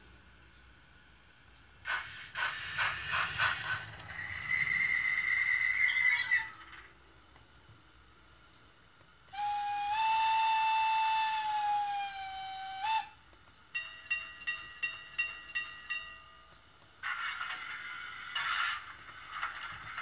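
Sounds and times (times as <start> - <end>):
hiss: 1.8 - 6.5
steam whistle blast: 9.3 - 13.2.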